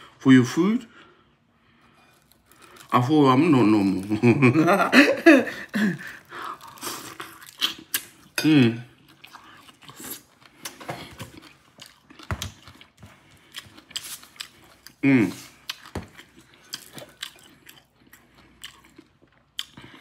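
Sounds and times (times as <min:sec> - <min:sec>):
man chewing food: 0:00.9 - 0:03.0, 0:03.6 - 0:20.0
man murmuring: 0:15.0 - 0:15.5.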